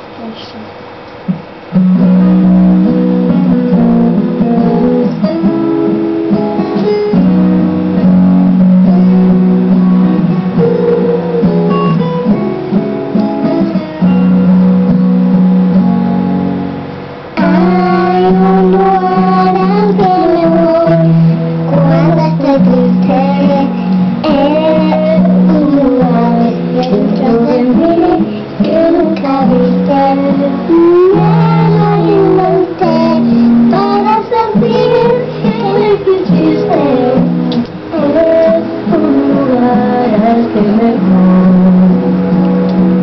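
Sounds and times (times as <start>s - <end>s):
guitar music: 1.2s - 43.0s
girl singing: 17.4s - 42.2s.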